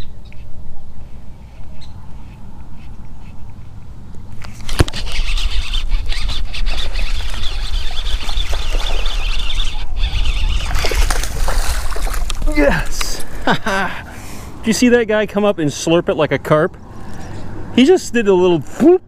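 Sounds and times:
fishing reel whirring: 0:04.7 - 0:11.4
fish splashing at surface: 0:10.6 - 0:12.5.

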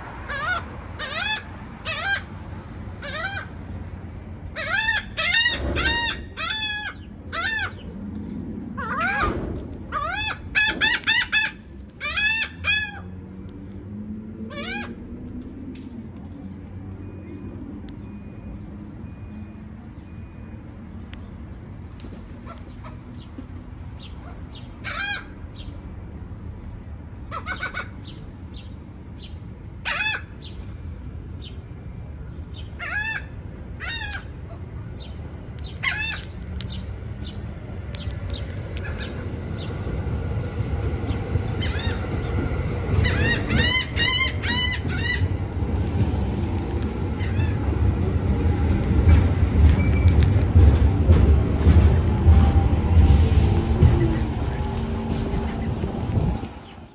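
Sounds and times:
gulls calling: 0:00.0 - 0:13.3, 0:27.2 - 0:28.3, 0:32.4 - 0:45.7, 0:46.9 - 0:48.2.

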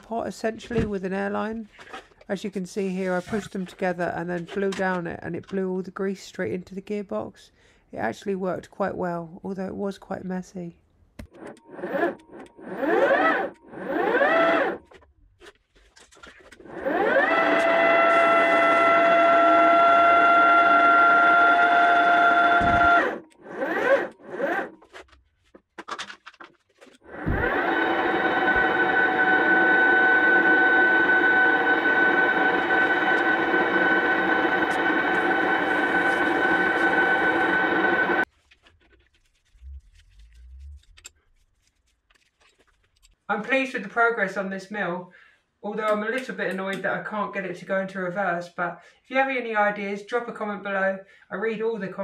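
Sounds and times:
milling machine motor whining: 0:11.4 - 0:14.9, 0:16.7 - 0:24.8, 0:27.1 - 0:38.3.

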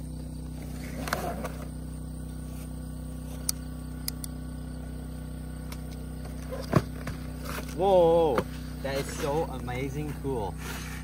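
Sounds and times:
low mechanical hum: 0:00.0 - 0:11.0
sharp clicks: 0:03.4 - 0:04.4.

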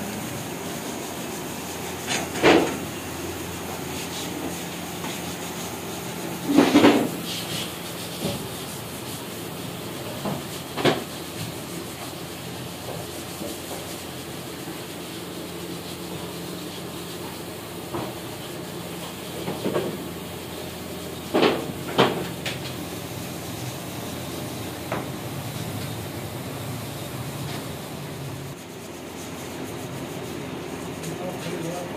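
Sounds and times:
factory machinery hum: 0:00.0 - 0:31.9
scrapes and knocks: 0:02.0 - 0:03.0, 0:06.2 - 0:08.7.

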